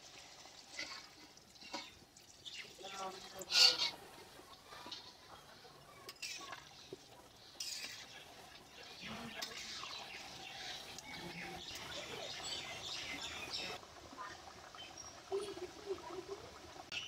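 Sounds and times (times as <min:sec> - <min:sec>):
curry bubbling in pot: 0:00.0 - 0:17.0
spatula stirring: 0:00.6 - 0:04.0, 0:06.1 - 0:11.7.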